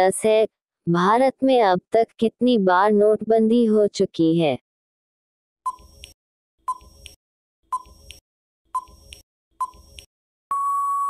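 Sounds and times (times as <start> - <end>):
long steady beep: 10.5 - 11.0.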